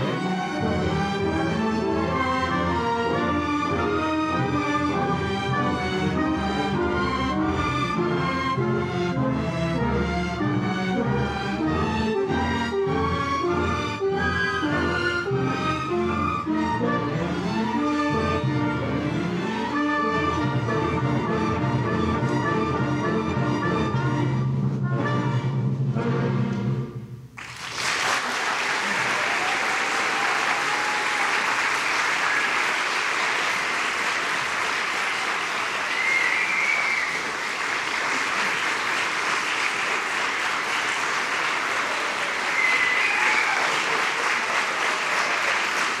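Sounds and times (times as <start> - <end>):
orchestra playing waltz chords: 0.0 - 27.3
audience applauding: 27.4 - 46.0
high-pitched calls from audience: 35.2 - 37.6, 41.9 - 44.2.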